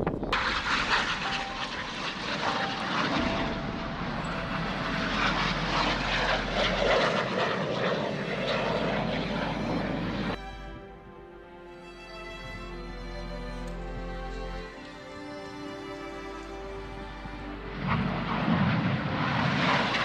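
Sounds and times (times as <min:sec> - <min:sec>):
jet flying past overhead: 0:00.1 - 0:10.4, 0:17.0 - 0:20.0.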